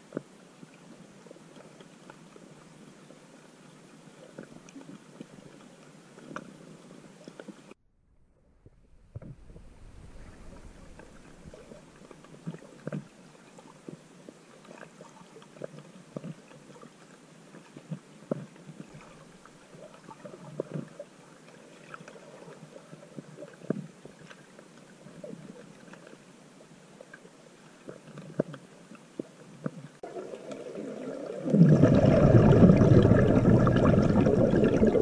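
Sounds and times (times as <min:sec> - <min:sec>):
underwater rush: 0:08.6 - 0:14.0, 0:30.0 - 0:35.0.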